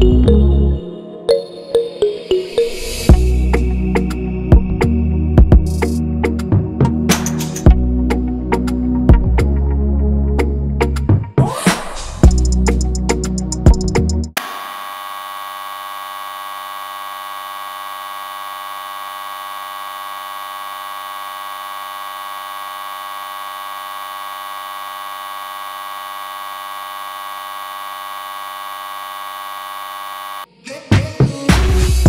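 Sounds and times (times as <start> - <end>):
electric water pump buzzing: 14.4 - 30.5.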